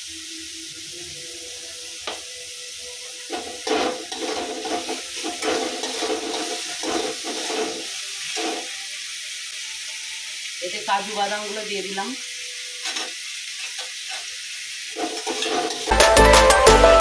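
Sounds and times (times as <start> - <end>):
onions sizzling in oil: 0.0 - 16.1
spatula scraping metal pan: 3.3 - 8.8, 12.8 - 14.3, 14.9 - 15.9.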